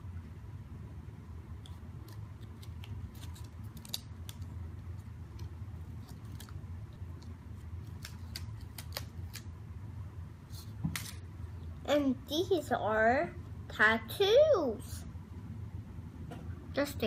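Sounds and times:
steady low hum: 0:00.0 - 0:17.0
paper crinkling: 0:01.6 - 0:09.5.

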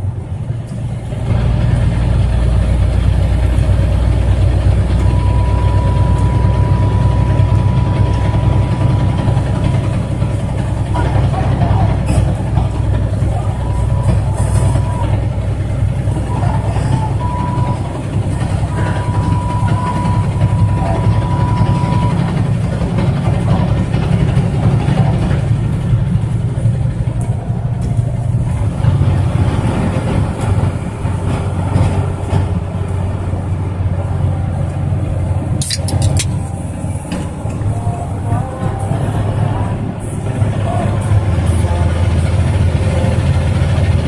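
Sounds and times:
road noise: 0:00.0 - 0:44.0
truck engine rumbling: 0:00.0 - 0:44.0
faint high tone: 0:16.2 - 0:22.3
sharp clicks: 0:35.6 - 0:36.4.

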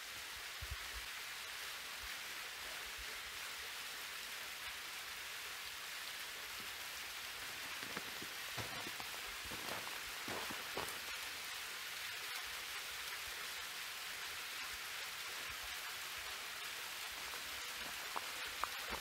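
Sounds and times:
waterfall splashing into pool: 0:00.1 - 0:19.0
water taps: 0:07.4 - 0:11.0.

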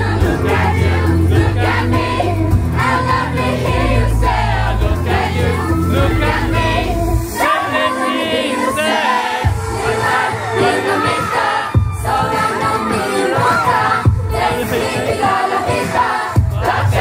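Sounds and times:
heavy bass beat: 0:00.0 - 0:07.4, 0:16.4 - 0:17.0
dance music over loudspeakers: 0:00.0 - 0:17.0.

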